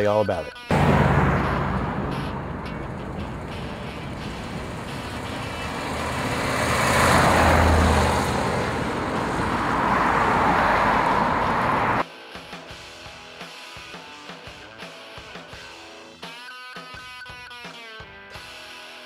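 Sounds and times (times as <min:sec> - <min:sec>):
car engine rumbling past: 0:00.7 - 0:12.0
road traffic: 0:00.7 - 0:12.0.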